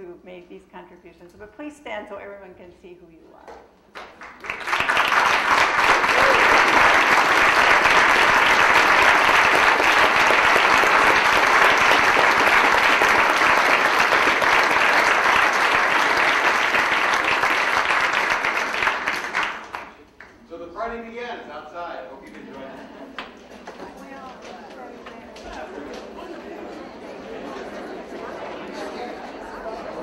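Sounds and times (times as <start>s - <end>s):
audience applauding: 3.9s - 20.4s.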